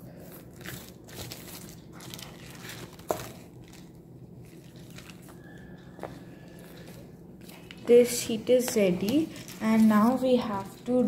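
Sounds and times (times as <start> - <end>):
paper rustling: 0.1 - 7.9, 8.8 - 10.8
plastic bag crinkling: 0.1 - 7.9, 9.0 - 10.8.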